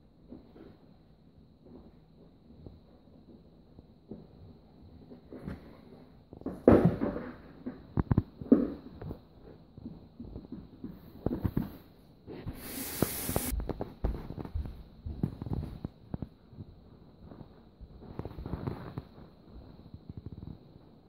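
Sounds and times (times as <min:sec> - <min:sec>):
hiss burst: 0:12.5 - 0:13.6.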